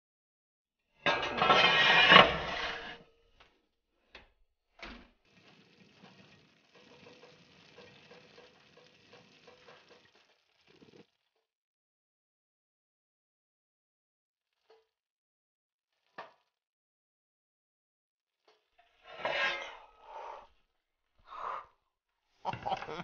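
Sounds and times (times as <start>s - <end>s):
dish scraping on oven rack: 1.0s - 3.1s, 19.0s - 20.1s.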